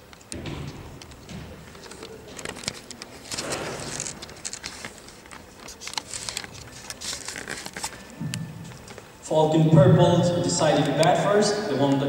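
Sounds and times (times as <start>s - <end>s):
knocks and clicks on hall floor: 0.0s - 5.4s.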